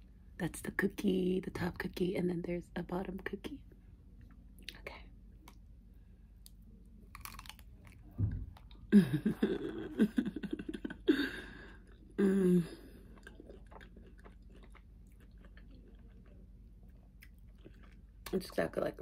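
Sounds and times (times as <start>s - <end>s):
bite crackle: 6.4s - 8.8s
chewing: 6.4s - 8.9s, 12.9s - 18.4s.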